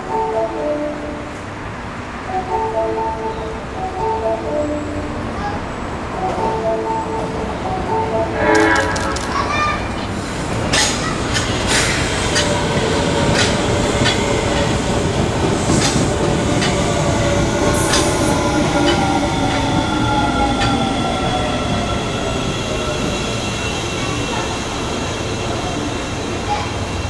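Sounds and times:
train rumble: 0.9s - 27.0s
train whine falling in pitch: 7.9s - 10.0s
train wheels clicking over joints: 10.6s - 19.6s.

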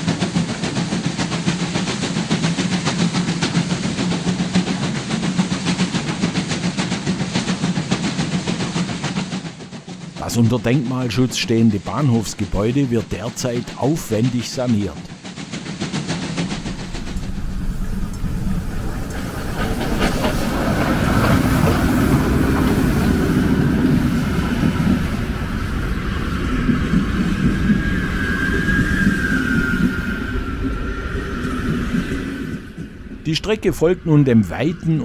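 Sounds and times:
train wheels rumbling on rail: 0.0s - 35.0s
thin wavering squeal: 26.0s - 35.0s.

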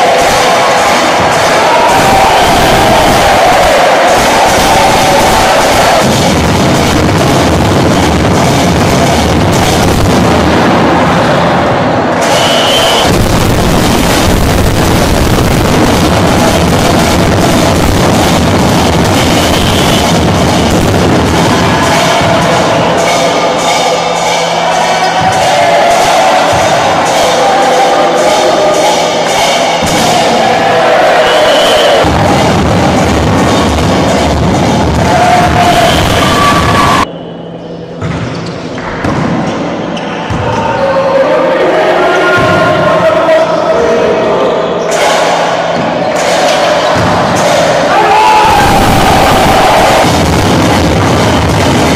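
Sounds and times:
spectators beating a drum: 0.0s - 37.1s, 44.9s - 51.9s
distorted gymnasium crowd noise: 0.0s - 51.9s.

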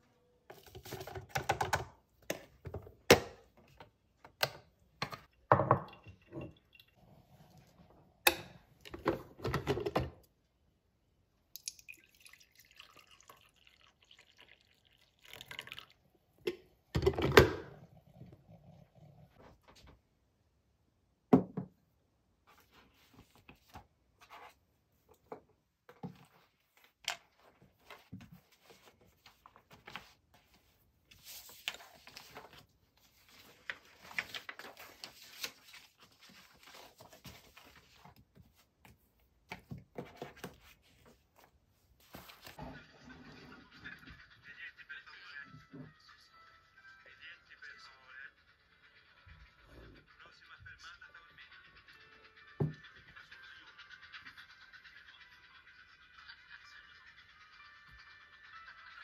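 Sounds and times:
coffee pouring into mug: 11.6s - 16.2s
papers rustling: 26.2s - 39.0s, 39.6s - 42.6s.

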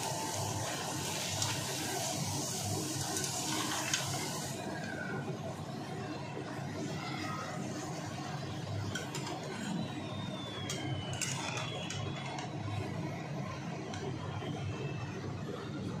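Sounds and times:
frying in hot oil sizzling: 0.0s - 5.2s.

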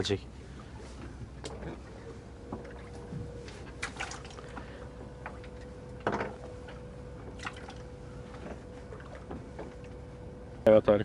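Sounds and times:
steady low hum: 0.0s - 11.0s
water dripping and splashing: 3.8s - 4.6s, 7.4s - 7.8s.

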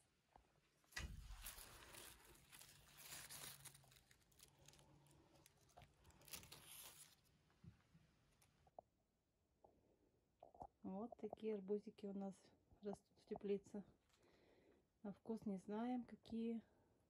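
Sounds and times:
rustling and crinkling: 0.2s - 8.8s.

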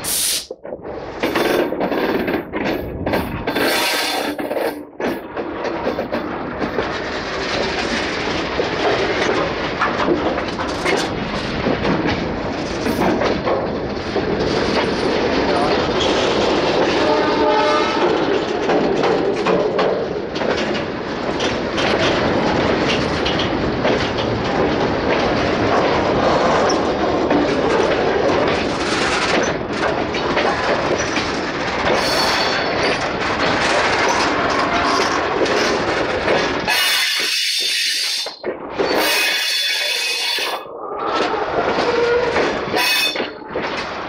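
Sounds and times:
train wheels clattering: 0.0s - 44.0s
train horn: 16.9s - 18.4s, 41.8s - 43.2s.

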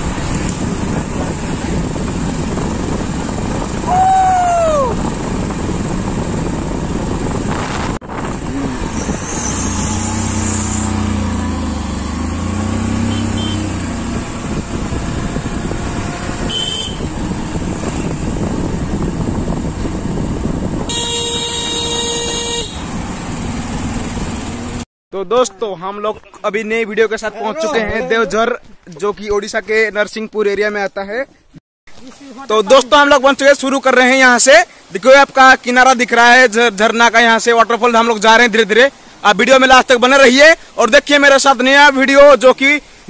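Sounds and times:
motorcycle engine drone: 0.0s - 24.8s
wind rush: 0.0s - 24.8s
motorcycle horn: 13.0s - 13.8s, 16.3s - 17.2s, 20.9s - 22.9s.

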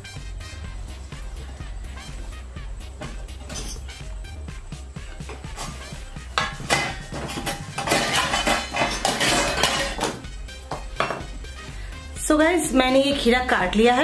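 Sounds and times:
metal spoon clinking on glass bowl: 6.4s - 10.2s.

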